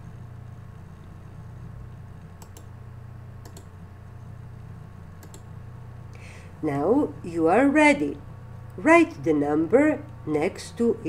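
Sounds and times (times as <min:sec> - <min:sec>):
low electrical hum: 0:00.0 - 0:11.0
computer mouse clicking: 0:01.9 - 0:02.7, 0:03.4 - 0:03.7, 0:05.2 - 0:05.5.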